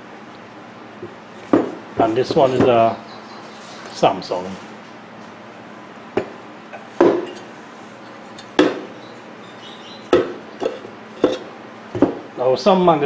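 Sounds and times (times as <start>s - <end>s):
metal housings clunking on wood: 6.2s - 8.9s, 10.1s - 12.2s.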